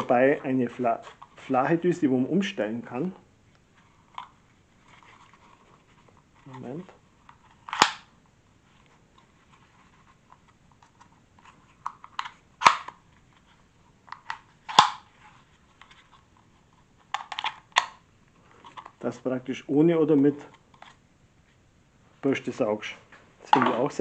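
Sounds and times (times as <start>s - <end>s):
plastic clicks and snaps: 11.8s - 13.0s.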